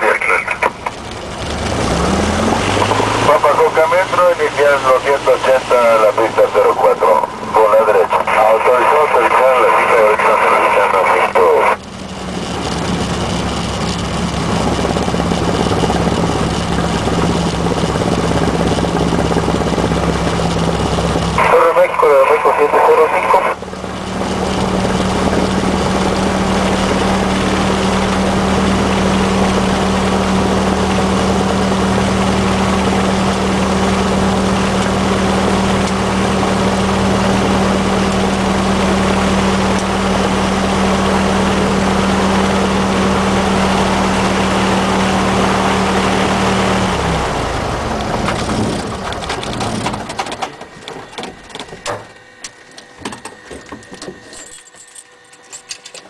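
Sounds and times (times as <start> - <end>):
propeller plane engine idling: 0.0 - 56.0.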